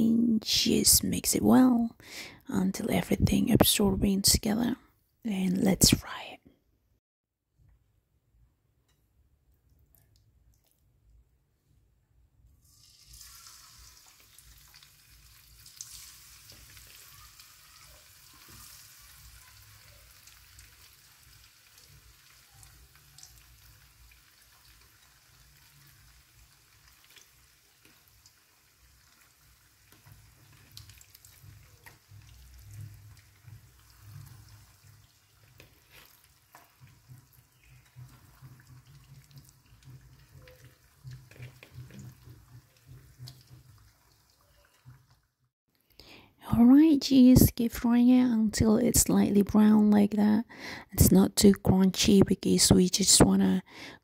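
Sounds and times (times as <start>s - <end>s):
chicken sizzling in hot oil: 12.6s - 45.3s
oil crackling and popping: 12.6s - 46.2s.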